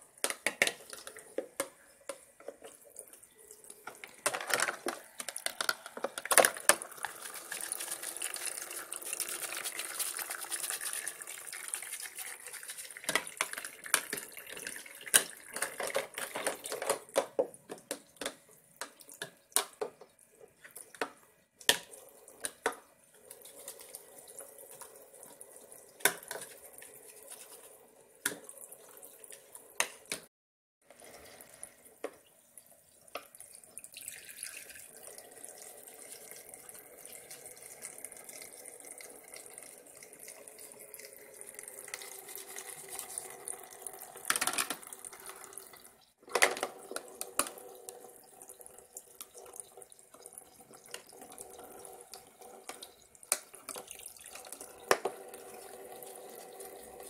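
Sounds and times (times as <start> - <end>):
plastic plates clacking: 0.2 - 2.8, 3.8 - 10.1, 12.9 - 20.1, 44.2 - 45.5, 46.2 - 48.0
water trickling from faucet: 6.6 - 16.8, 23.2 - 29.8, 30.9 - 46.1, 46.8 - 57.0.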